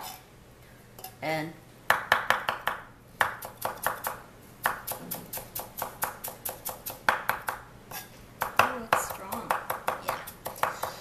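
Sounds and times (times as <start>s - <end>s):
knife chopping on wooden board: 1.9s - 7.6s, 8.4s - 11.0s.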